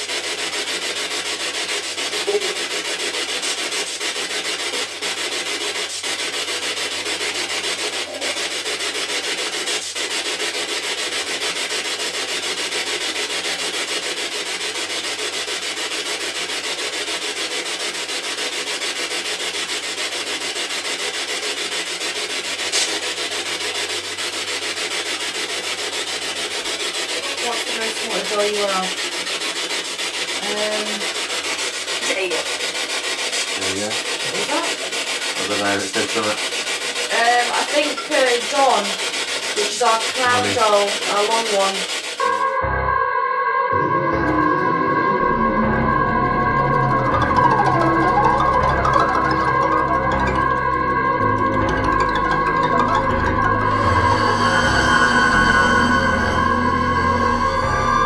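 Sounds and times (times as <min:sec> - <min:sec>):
radio static hiss: 0:39.7 - 0:41.4
radio warbling: 0:39.7 - 0:41.4.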